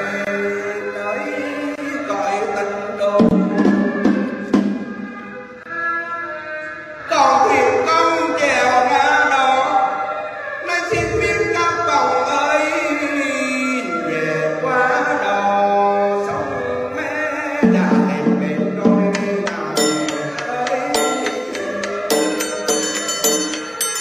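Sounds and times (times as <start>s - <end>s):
person singing funeral chant: 0.0s - 24.0s
musical accompaniment: 17.6s - 24.0s.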